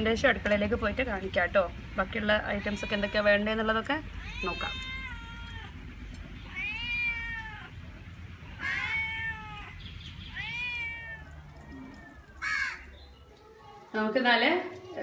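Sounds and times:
cat meowing: 2.5s - 3.5s, 4.2s - 5.8s, 6.4s - 7.8s, 8.6s - 12.8s.

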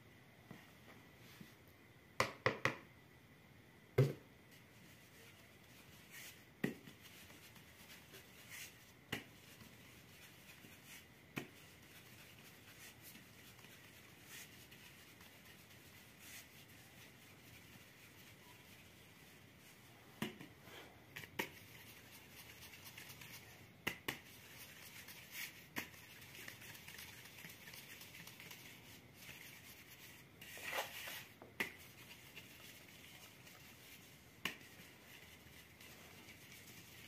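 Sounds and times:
rustle of falling flour: 4.5s - 20.0s, 24.2s - 37.0s.

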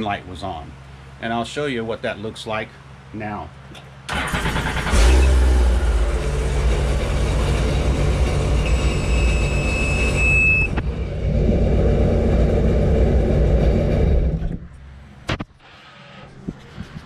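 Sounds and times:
watercraft engine idling: 5.4s - 14.6s
high-pitched warning beep: 8.6s - 10.8s.

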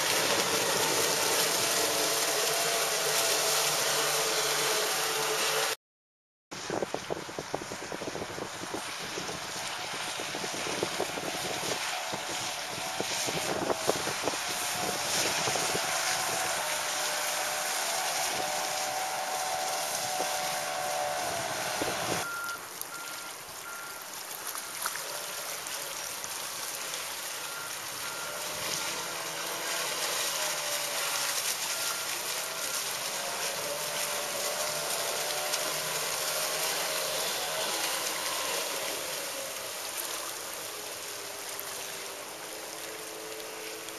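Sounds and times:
outboard engine running at speed: 0.0s - 5.8s, 6.6s - 43.9s.

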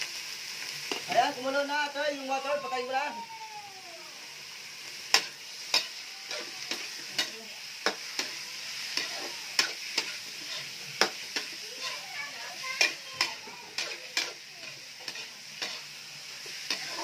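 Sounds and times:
chicken sizzling in a wok: 0.0s - 17.0s
metal spatula scraping a pan: 5.1s - 17.0s.

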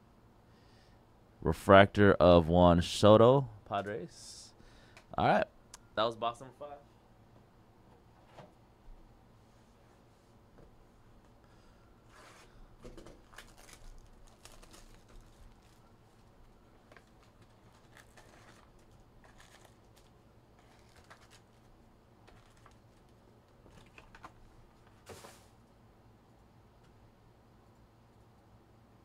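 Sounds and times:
foil packs crinkling: 13.0s - 24.4s.

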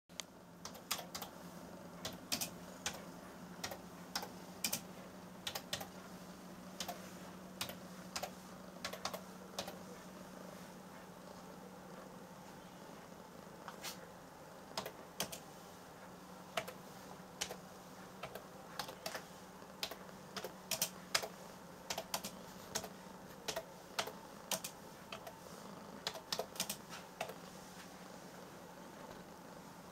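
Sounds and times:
faint low hum: 0.1s - 29.9s.

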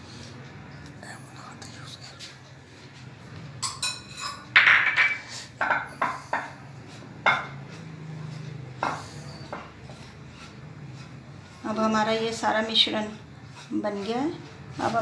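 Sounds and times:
metal spoon scraping glass bowl: 3.6s - 4.5s, 5.2s - 15.0s
knocks and scrapes on glass dish: 3.6s - 6.6s, 7.2s - 10.2s.

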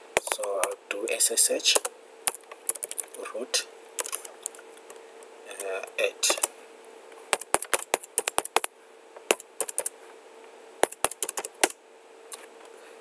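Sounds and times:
faint steady hum: 0.0s - 13.0s
computer keyboard key clicks: 4.0s - 4.6s, 9.3s - 9.9s, 10.8s - 11.5s.

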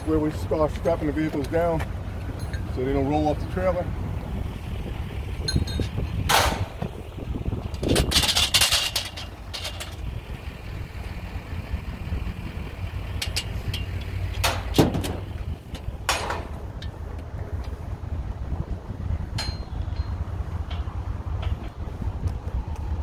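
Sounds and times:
wind rumble on microphone: 0.0s - 23.0s
metal clatter: 7.6s - 10.1s, 13.0s - 17.0s, 19.3s - 21.9s.

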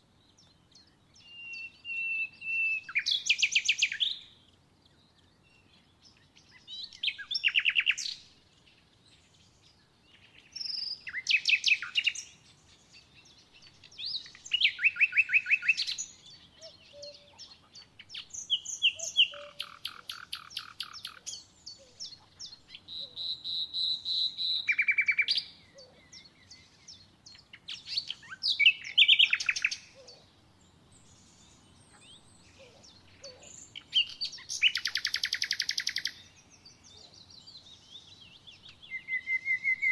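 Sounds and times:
songbirds trilling: 0.0s - 39.9s
thin bird calls: 10.2s - 30.3s, 31.0s - 39.9s.

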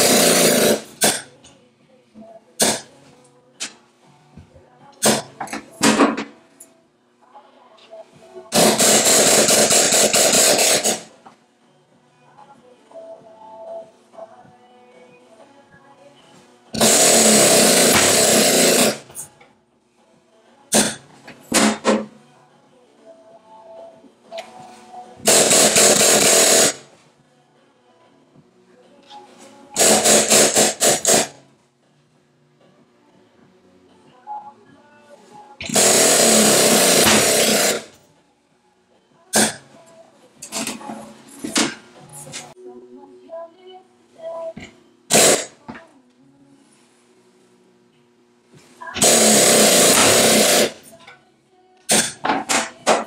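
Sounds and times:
power shears cutting metal sheet: 0.0s - 1.2s, 8.6s - 11.1s, 16.8s - 19.1s, 25.2s - 26.8s, 29.8s - 31.4s, 35.6s - 37.9s, 49.0s - 50.8s.

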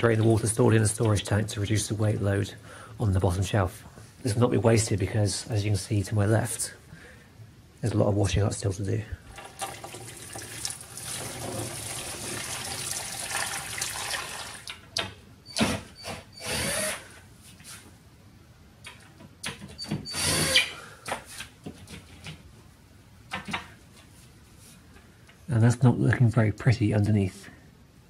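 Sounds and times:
tap water running into bucket: 9.3s - 14.7s
cordless drill motor whining: 16.0s - 17.0s, 20.1s - 20.7s.

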